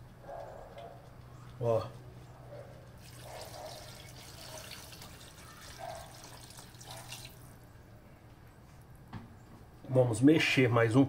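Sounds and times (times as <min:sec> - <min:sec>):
water pouring into a pot: 0:03.0 - 0:07.4.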